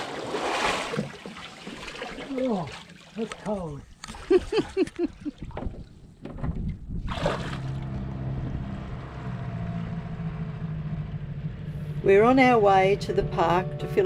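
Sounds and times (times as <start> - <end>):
water splashing: 0.0 - 6.0, 6.9 - 8.1
outboard motor humming: 7.0 - 14.0.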